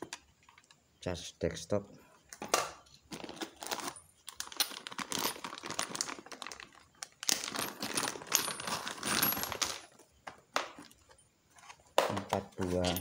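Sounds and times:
plastic bag crinkling: 3.1s - 9.7s.

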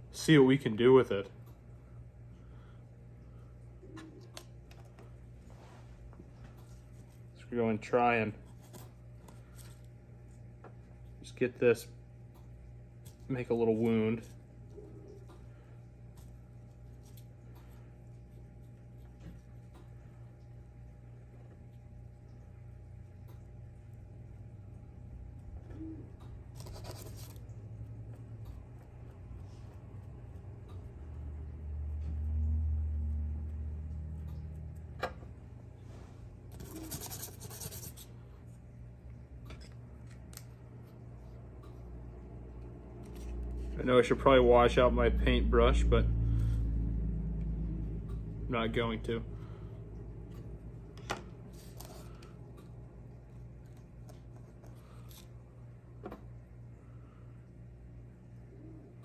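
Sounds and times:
steady low hum: 0.0s - 59.0s
paintbrush scratching on cardboard: 26.6s - 27.4s, 36.5s - 38.1s
low rumble: 43.2s - 51.0s.

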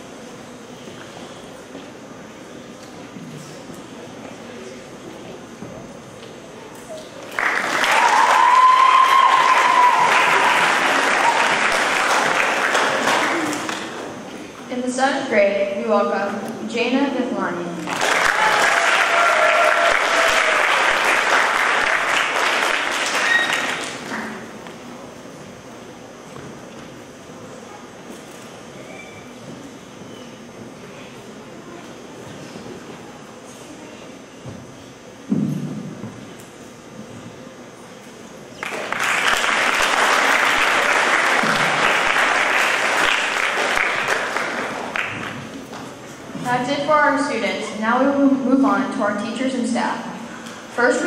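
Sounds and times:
audience applauding: 7.2s - 14.2s, 17.9s - 24.4s, 38.6s - 45.5s.

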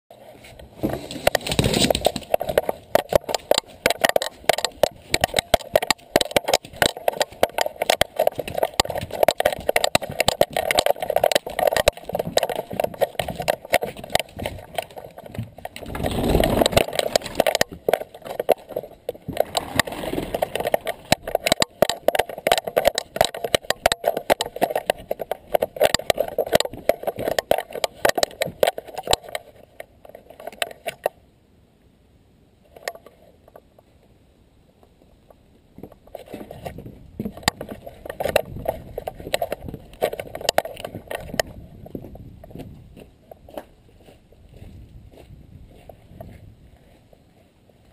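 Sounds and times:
heavy bumps: 0.5s - 28.8s.

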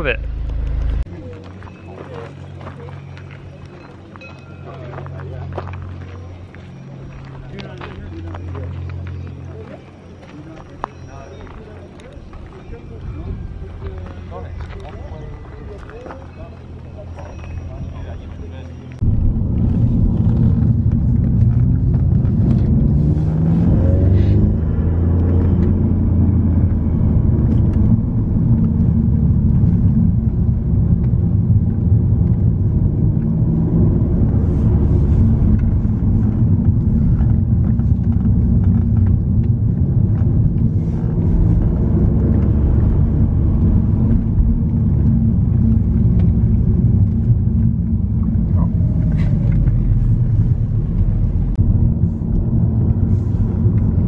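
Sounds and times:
car engine rumble: 0.0s - 54.0s
road noise inside car: 0.0s - 54.0s.

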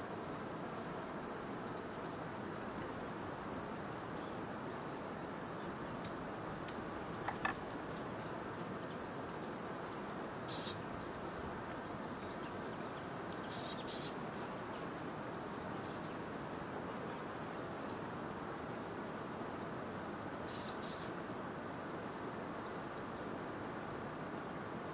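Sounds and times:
small wildlife chirping: 6.8s - 7.7s.

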